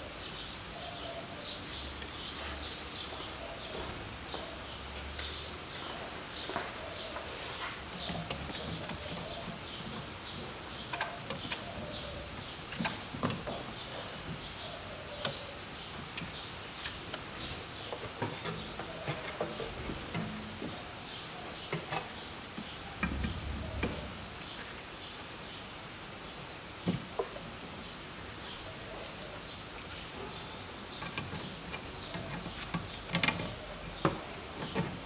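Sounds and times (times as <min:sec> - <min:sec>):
hands clicking on hoses and connectors: 0:30.9 - 0:35.0.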